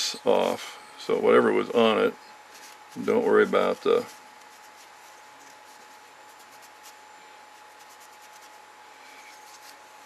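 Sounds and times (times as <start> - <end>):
tissue rubbing circuit board: 2.4 - 10.0.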